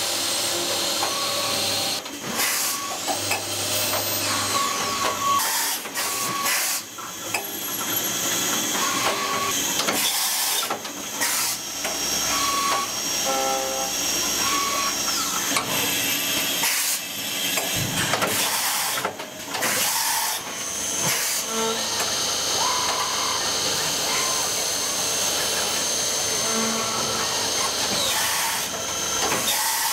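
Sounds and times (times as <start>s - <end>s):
high whining machine spindles: 19.6s - 29.9s.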